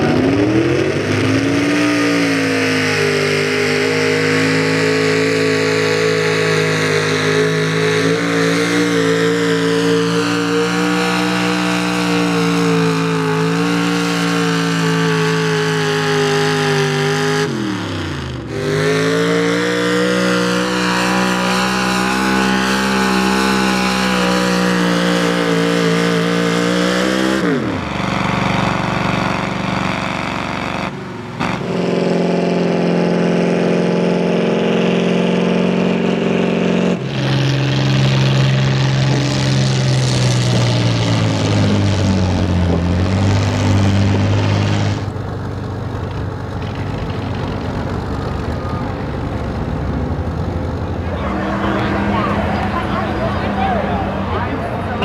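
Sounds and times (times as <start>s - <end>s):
pickup engine at high revs: 0.0s - 55.0s.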